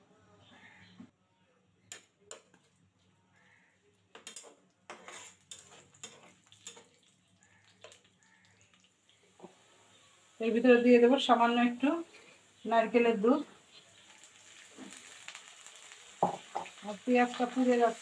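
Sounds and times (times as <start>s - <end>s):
metal spatula scraping a pan: 4.2s - 8.1s.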